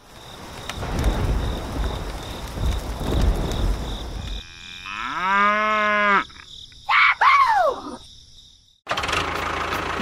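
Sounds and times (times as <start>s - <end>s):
cow mooing: 4.4s - 6.3s.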